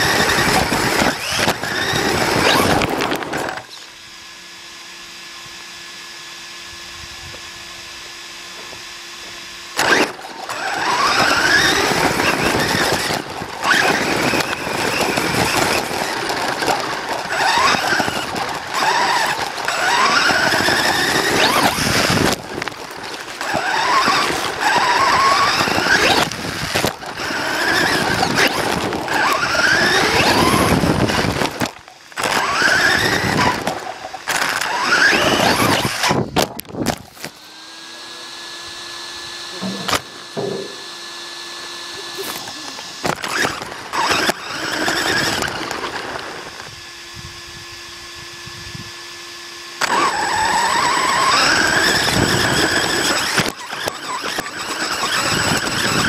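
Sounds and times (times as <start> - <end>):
chassis and tyres rattling on dirt: 0.0 - 3.9, 9.7 - 37.4, 42.2 - 46.6, 49.8 - 56.0
electric motor whining: 0.0 - 56.0.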